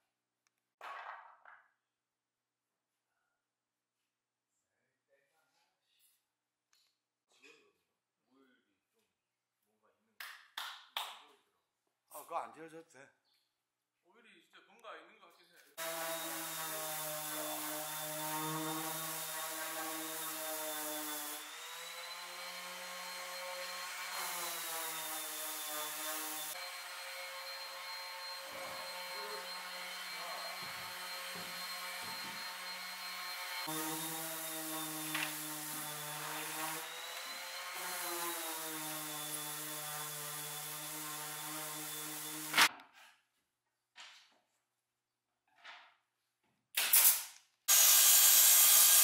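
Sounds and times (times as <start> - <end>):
table saw motor humming: 15.8 - 42.6.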